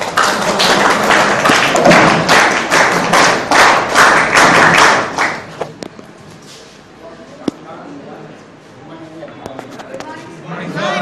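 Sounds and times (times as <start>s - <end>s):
audience clapping in rhythm: 0.0s - 5.8s.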